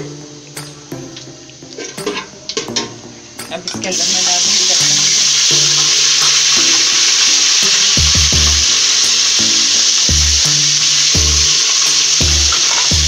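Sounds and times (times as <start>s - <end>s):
paste sizzling in hot oil: 3.9s - 13.0s.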